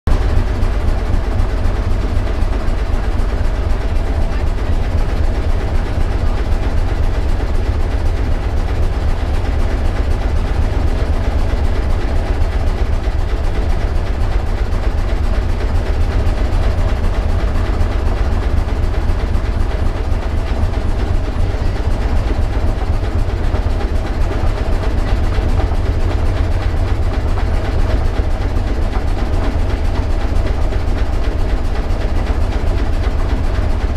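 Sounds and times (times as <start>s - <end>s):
ship engine running: 0.1s - 33.9s.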